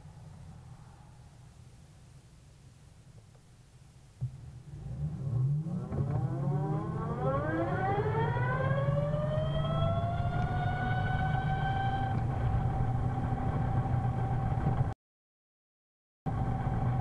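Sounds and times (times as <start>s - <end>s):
low rumble: 4.0s - 14.9s
electric scooter gear whine: 4.7s - 14.9s, 16.3s - 17.0s.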